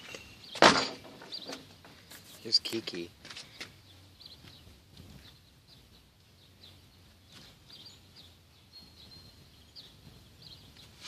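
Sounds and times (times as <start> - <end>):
bird chirps: 0.0 - 0.6, 1.2 - 2.8, 3.4 - 11.0.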